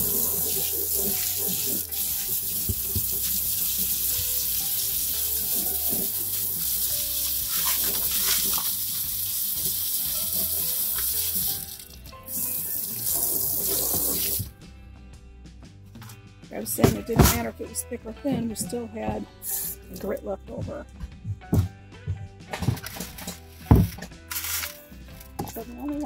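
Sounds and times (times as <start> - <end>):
spray nozzle hissing water: 0.0 - 14.4.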